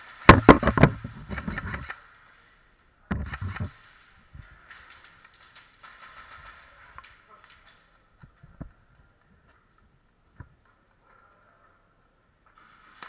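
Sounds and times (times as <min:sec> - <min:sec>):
sharp clicks and knocks: 0:00.2 - 0:02.0, 0:03.1 - 0:03.8.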